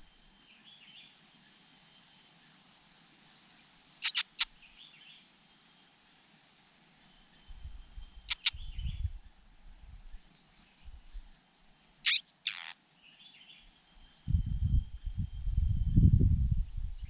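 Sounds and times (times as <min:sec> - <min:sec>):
small songbird chirping: 0:00.0 - 0:05.3, 0:07.0 - 0:17.0
low rumbling noise: 0:14.2 - 0:17.0.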